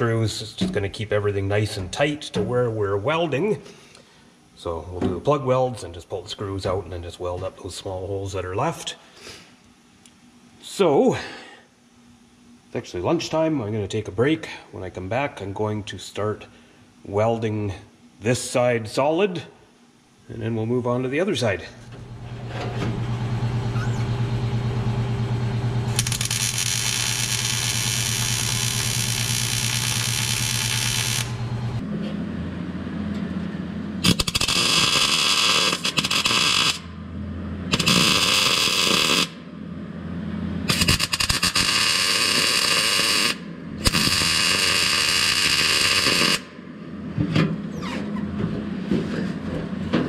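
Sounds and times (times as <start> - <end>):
steady hum with hiss: 0.0 - 50.0
welder crackling: 24.6 - 31.8, 34.0 - 36.9, 37.7 - 39.4, 40.7 - 46.5.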